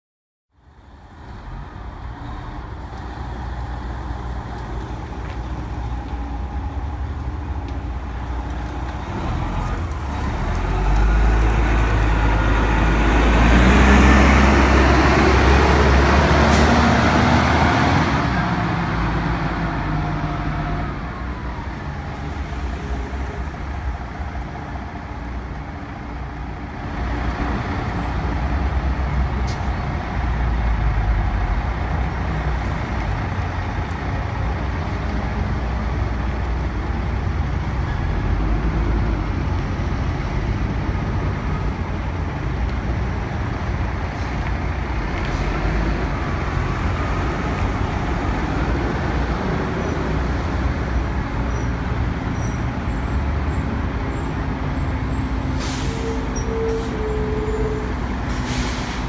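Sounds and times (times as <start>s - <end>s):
bus diesel engine rumbling: 0.5s - 59.0s.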